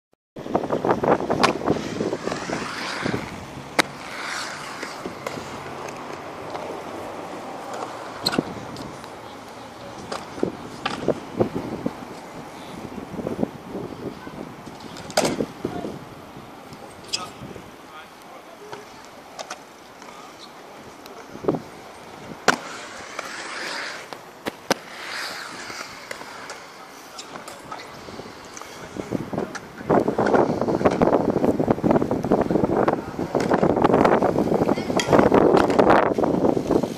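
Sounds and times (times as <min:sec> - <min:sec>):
skateboard wheels rolling on concrete: 0:00.4 - 0:36.9
skateboard sharp clack: 0:01.3 - 0:06.7, 0:07.7 - 0:11.2, 0:14.6 - 0:15.5, 0:22.4 - 0:31.1, 0:33.3 - 0:36.3.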